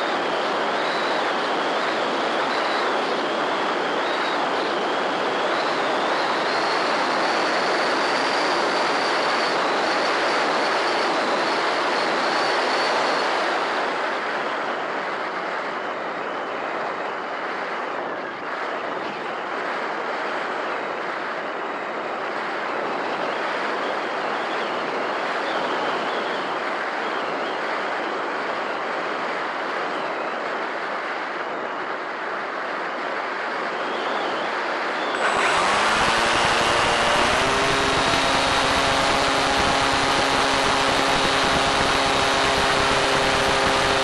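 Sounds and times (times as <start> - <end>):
electric motor and propeller whine: 0.0 - 14.8, 34.8 - 44.0
wind rushing over microphone: 0.0 - 44.0.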